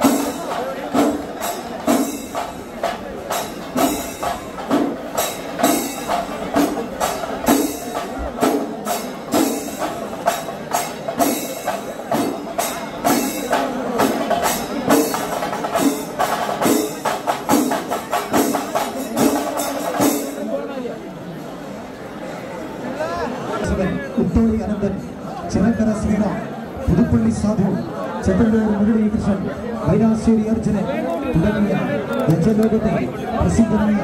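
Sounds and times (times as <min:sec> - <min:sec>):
rhythmic percussion music: 0:00.0 - 0:21.5.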